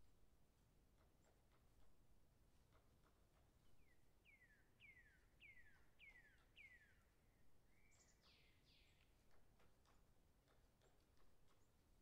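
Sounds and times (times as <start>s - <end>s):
distant whistled bird calls: 3.8s - 9.0s
faint ticks: 8.0s - 12.0s.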